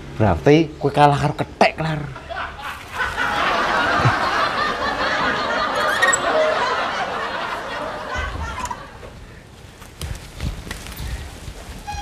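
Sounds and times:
crowd laughing: 2.0s - 9.1s.

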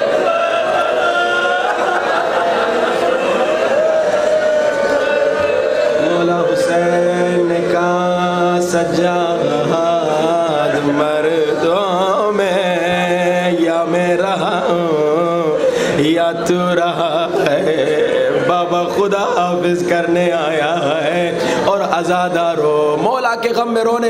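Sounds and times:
man chanting a mournful lament: 5.9s - 24.0s.

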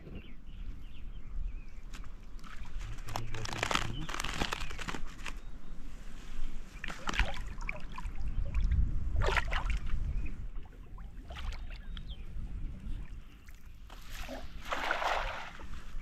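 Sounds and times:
water splashing and sloshing: 1.9s - 5.3s, 6.7s - 16.0s.

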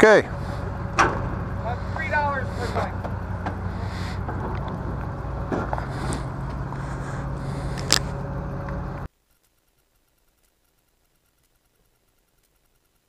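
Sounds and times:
engine idling with low hum: 0.0s - 9.1s.

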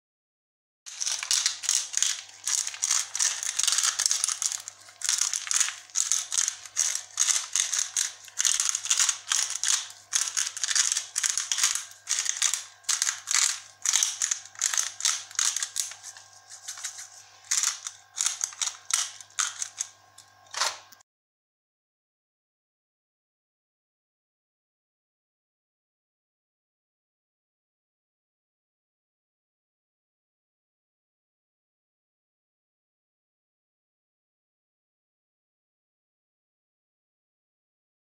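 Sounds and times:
plastic shaker bottle rattling: 0.9s - 19.9s.

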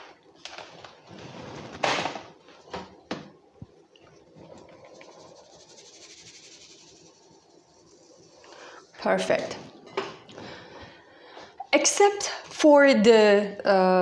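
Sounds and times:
sieve rustling rattle: 4.8s - 9.2s.

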